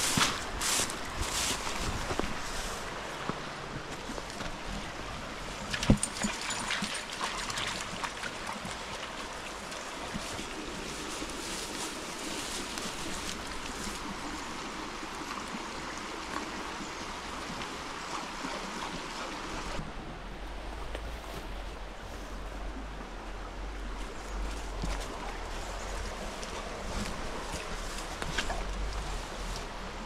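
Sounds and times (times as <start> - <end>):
rustling and crackling: 0.0 - 4.7, 10.1 - 14.2, 23.9 - 30.0
stream running over rocks: 0.0 - 30.0.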